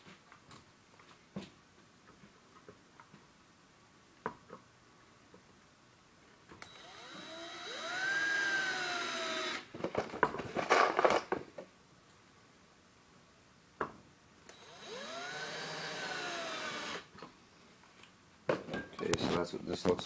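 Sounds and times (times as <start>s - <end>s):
cordless drill driving screw: 6.6s - 9.7s, 14.5s - 17.1s.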